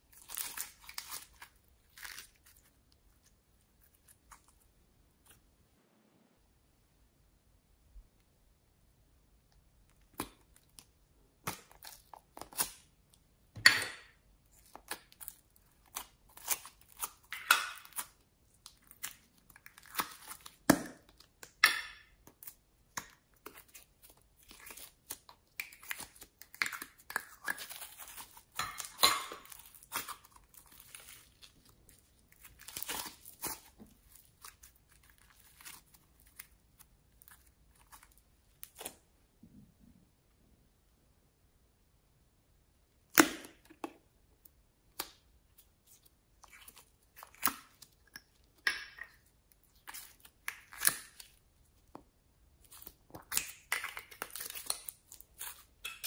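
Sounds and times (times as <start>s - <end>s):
foam clay crackling and tearing: 0.0s - 5.4s, 14.5s - 21.4s, 22.2s - 39.0s.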